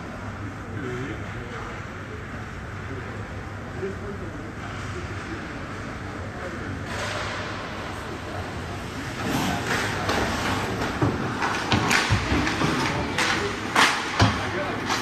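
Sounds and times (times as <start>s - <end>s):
hockey sticks and puck clacking: 6.9s - 15.0s
skates hissing on ice: 9.0s - 10.8s.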